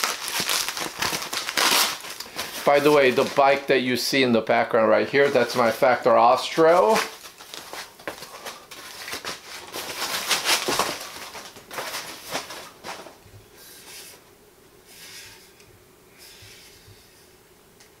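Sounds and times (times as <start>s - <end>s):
packaging crinkling: 0.0s - 3.8s, 5.1s - 13.2s.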